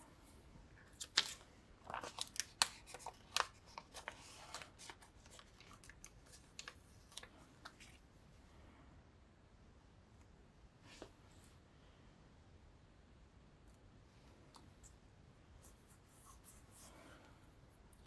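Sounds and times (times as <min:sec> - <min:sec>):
plastic sticker sheet crinkling: 0:00.8 - 0:08.0.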